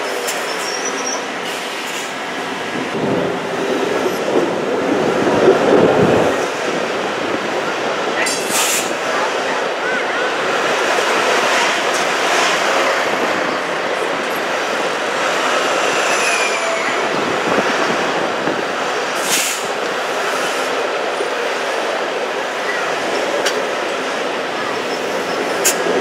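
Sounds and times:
faint wheel squeal: 0.0 - 1.7
passing streetcar: 0.0 - 26.0
streetcar wheels rumbling on rails: 0.0 - 26.0.

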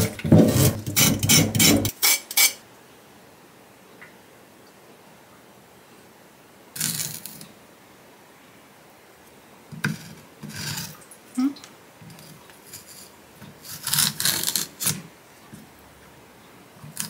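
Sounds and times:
peeler scraping a carrot: 0.0 - 2.6, 12.2 - 15.0.

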